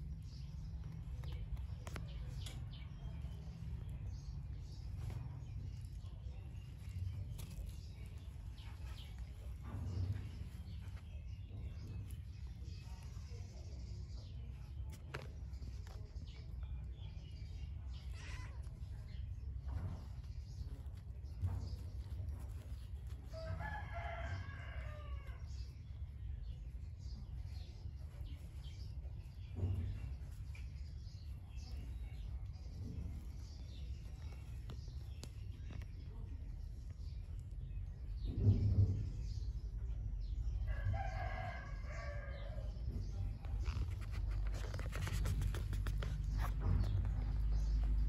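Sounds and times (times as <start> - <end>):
rooster crowing: 23.4 - 25.4.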